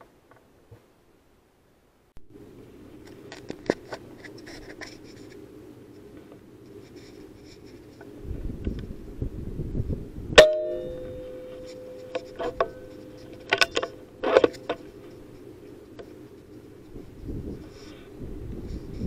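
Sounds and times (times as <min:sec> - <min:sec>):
metallic clang ringing: 0:10.4 - 0:14.7.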